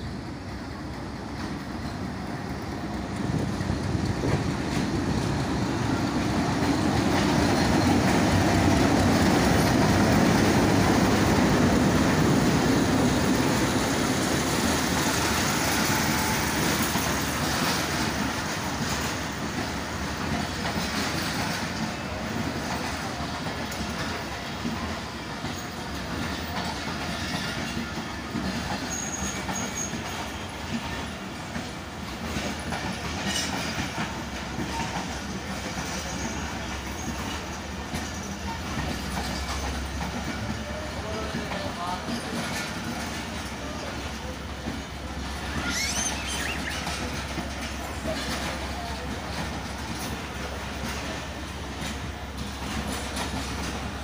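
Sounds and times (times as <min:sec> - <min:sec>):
train rumble: 0:00.0 - 0:54.0
wheels clacking over rail joints: 0:00.4 - 0:54.0
wheel squeal: 0:28.8 - 0:30.2, 0:45.4 - 0:47.4.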